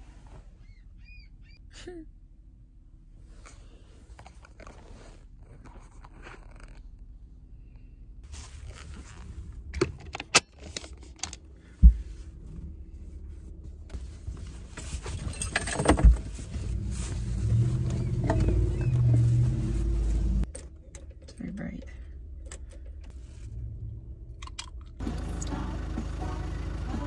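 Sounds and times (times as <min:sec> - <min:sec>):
low steady rumble: 0:00.0 - 0:27.0
bedding rustling: 0:13.9 - 0:20.4.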